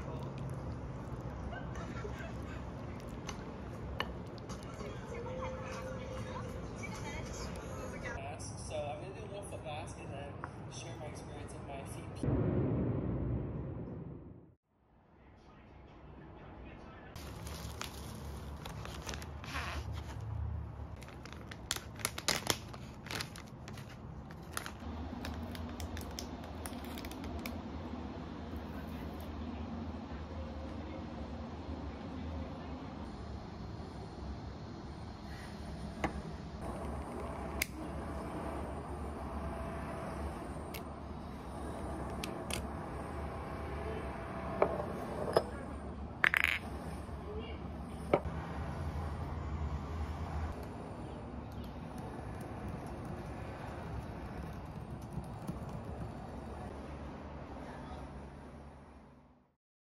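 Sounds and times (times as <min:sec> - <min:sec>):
plastic wrapper crinkling: 0:17.2 - 0:20.2, 0:21.0 - 0:27.4
tissue paper rustling: 0:17.2 - 0:20.2
steady low hum: 0:27.5 - 0:49.4.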